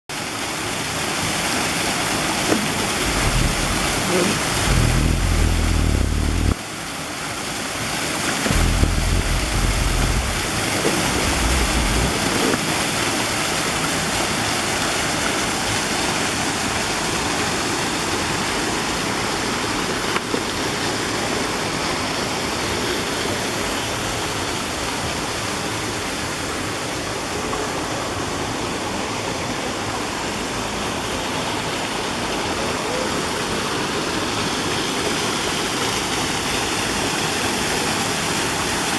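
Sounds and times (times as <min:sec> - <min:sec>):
waterfall splashing into pool: 0:00.1 - 0:38.9
low rumble: 0:02.8 - 0:06.6, 0:08.5 - 0:12.6.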